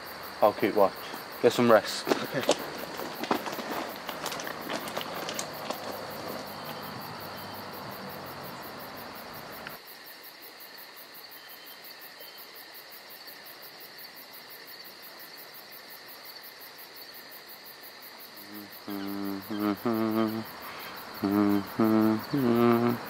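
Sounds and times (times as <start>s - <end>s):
insects chirring: 0.0s - 23.0s
loud rustling: 1.0s - 7.3s.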